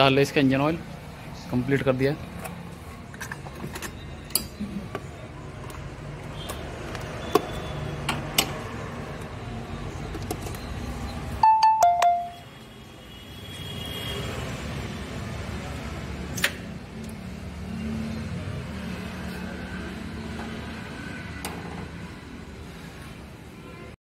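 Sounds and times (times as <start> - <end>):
two-note electronic chime: 11.4 - 12.4.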